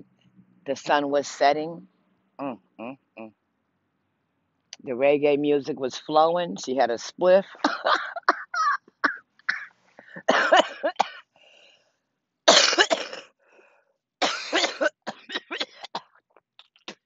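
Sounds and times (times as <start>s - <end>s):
woman coughing: 7.5s - 11.3s, 12.5s - 13.3s, 14.2s - 16.1s.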